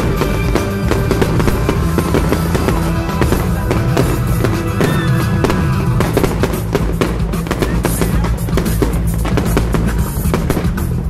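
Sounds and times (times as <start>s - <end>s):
fireworks popping and banging: 0.0s - 11.0s
music with driving drum beat: 0.0s - 11.0s.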